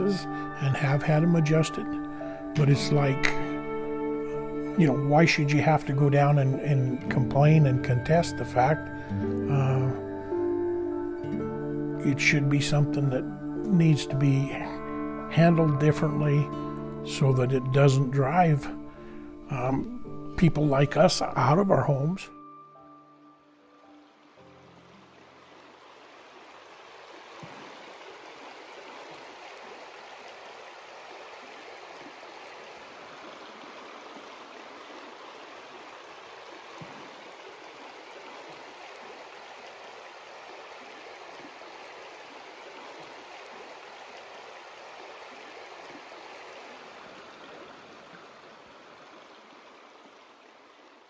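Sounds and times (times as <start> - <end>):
river babbling over cobbles: 0.0 - 10.3, 24.0 - 51.0.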